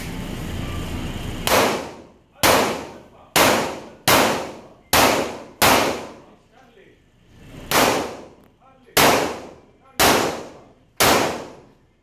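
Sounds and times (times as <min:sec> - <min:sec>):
pistol shots with echo: 0:01.4 - 0:06.3, 0:07.7 - 0:08.4, 0:09.0 - 0:11.7.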